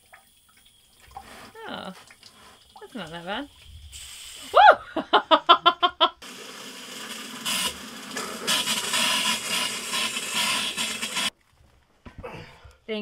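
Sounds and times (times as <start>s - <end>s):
air and water spraying hiss: 3.8s - 4.6s.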